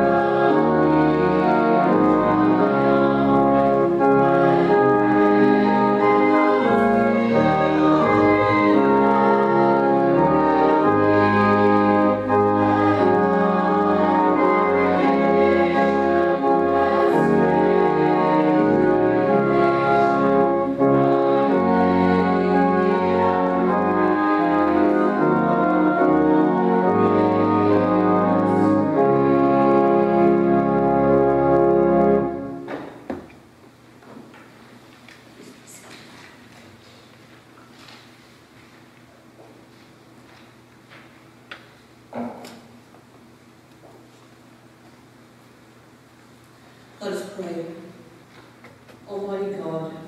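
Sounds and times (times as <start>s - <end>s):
church organ chords: 0.0s - 33.1s.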